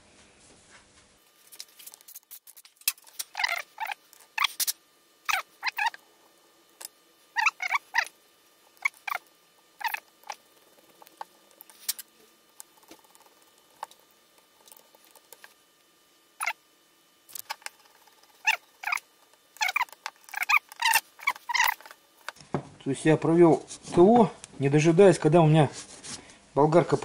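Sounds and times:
screwdriver squeaks and clicks: 1.5s - 4.7s, 5.3s - 6.0s, 6.8s - 8.2s, 8.8s - 12.0s, 17.3s - 22.3s.

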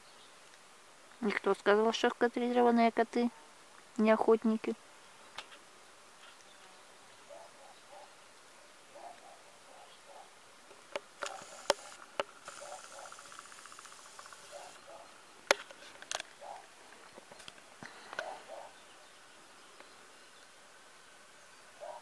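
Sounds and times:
insect buzzing: 11.2s - 14.8s.

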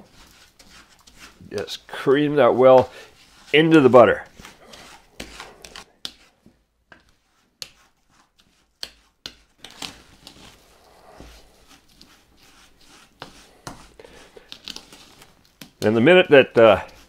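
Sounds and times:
wooden spoon scraping ceramic bowl: 0.0s - 6.4s, 10.1s - 15.2s.

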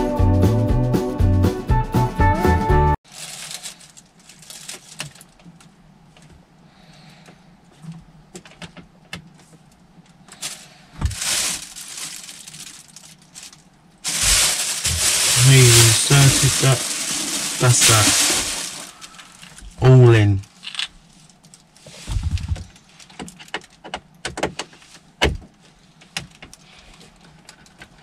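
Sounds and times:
background music: 0.0s - 3.0s
plastic bin bag rustling: 3.1s - 5.4s, 10.4s - 19.5s.

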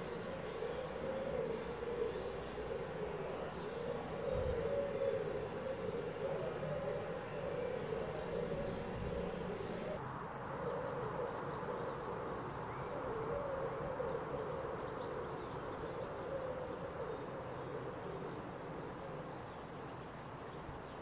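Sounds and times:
steady wavering hum: 0.0s - 10.0s.

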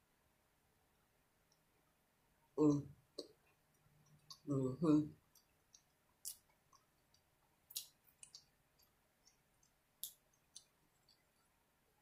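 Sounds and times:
wet mouth chewing clicks: 3.2s - 4.5s, 5.2s - 11.4s.

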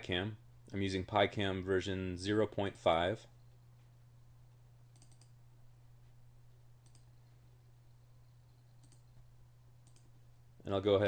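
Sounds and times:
low steady hum: 0.0s - 11.0s
computer mouse clicks: 4.9s - 5.4s, 6.8s - 7.3s, 8.6s - 9.2s, 9.8s - 10.2s.

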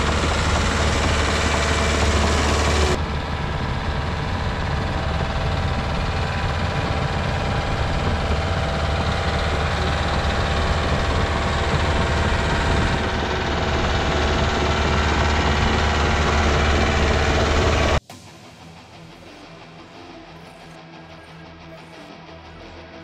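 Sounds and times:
heavy diesel engine running: 0.0s - 18.0s.

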